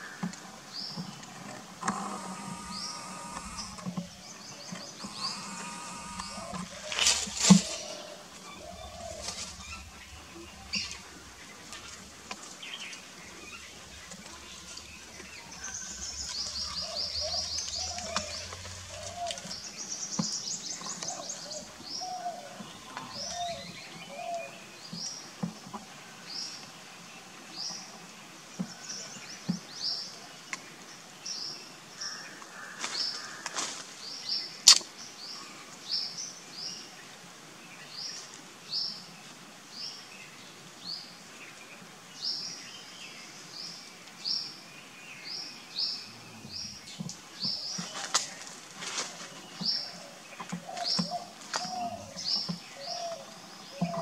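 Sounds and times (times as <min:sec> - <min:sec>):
bird chirping: 0:00.7 - 0:25.2, 0:49.3 - 0:54.0
faint bird calls: 0:01.8 - 0:19.8, 0:47.5 - 0:54.0
bird trilling: 0:04.9 - 0:10.0.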